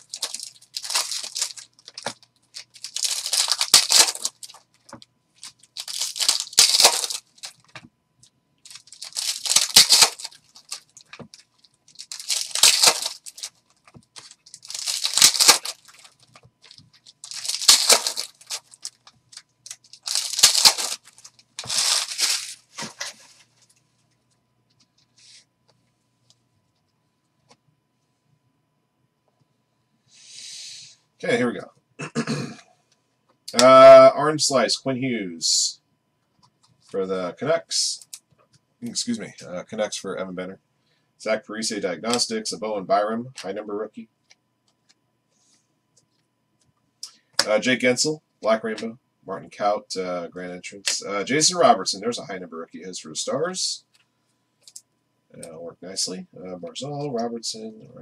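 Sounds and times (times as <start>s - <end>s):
foil wrapper tearing and crinkling: 0.0s - 4.7s, 5.4s - 7.7s, 8.7s - 22.8s.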